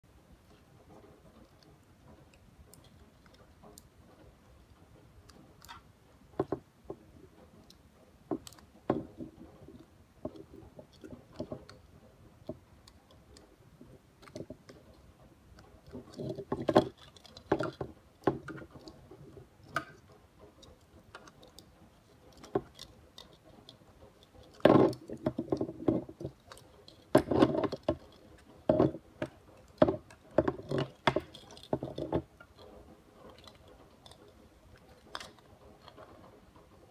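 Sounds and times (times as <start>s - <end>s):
plastic figure joints clicking: 15.8s - 36.3s.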